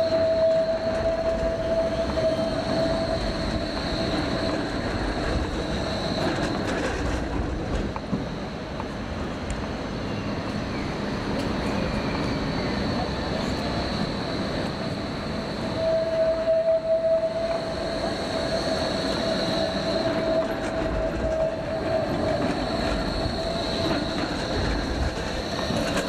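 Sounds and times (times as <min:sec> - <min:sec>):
tram running rumble: 0:00.0 - 0:26.0
tram wheels squealing: 0:00.0 - 0:26.0.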